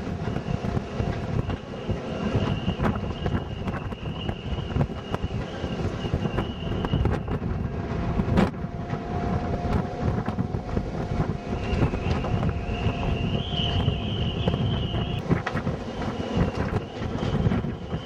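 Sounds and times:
faint high whistling tones: 0.0 - 7.8, 11.2 - 15.2, 15.8 - 18.0
wind buffeting microphone: 0.0 - 18.0.

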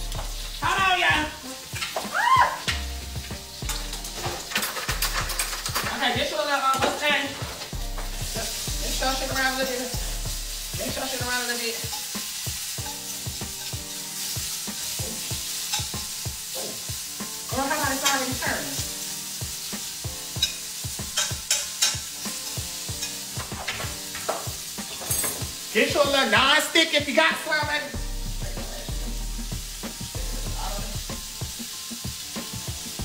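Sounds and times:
meat sizzling in a pan: 0.0 - 33.0
utensil clicking against pan: 1.7 - 2.9, 3.6 - 6.0, 20.3 - 25.5
utensil scraping a pan: 3.2 - 6.2, 11.8 - 18.4, 19.7 - 25.9.

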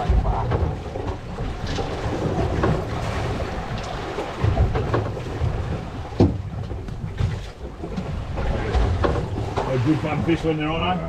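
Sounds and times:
water sloshing against boat hull: 0.0 - 11.0
wind buffeting microphone: 0.0 - 11.0.

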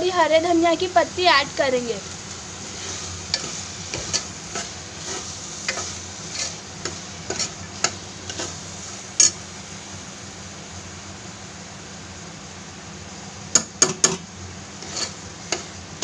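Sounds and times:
low sizzle: 0.0 - 16.0
metal spoon scraping a pot: 2.8 - 8.6, 14.8 - 15.7.

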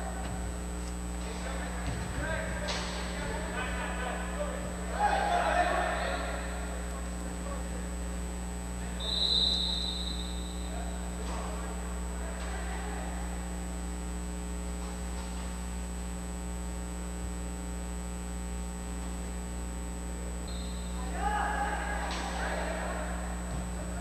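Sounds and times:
electrical mains hum: 0.0 - 24.0
referee's whistle blast: 8.9 - 11.0, 20.5 - 21.2.

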